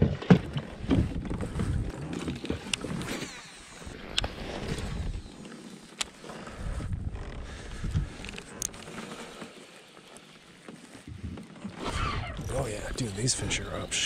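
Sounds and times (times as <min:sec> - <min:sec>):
gear knocking and rustling: 0:00.0 - 0:03.3.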